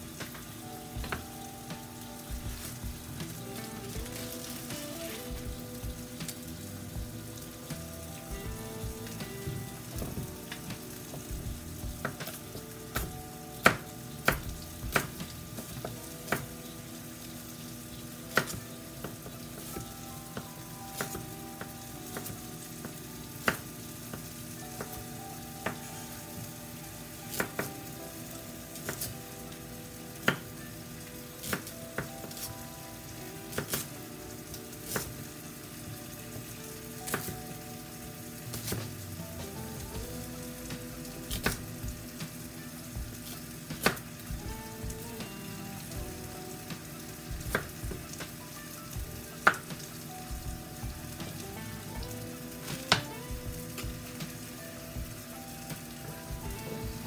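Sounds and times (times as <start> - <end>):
meat sizzling in skillet: 0.0 - 57.0
knife chopping on wooden board: 43.7 - 44.4.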